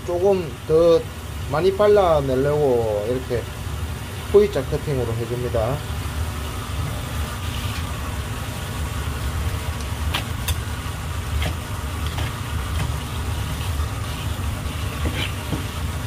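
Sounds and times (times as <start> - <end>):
low mechanical hum: 0.0 - 16.0
water splashing from a hose: 6.4 - 16.0.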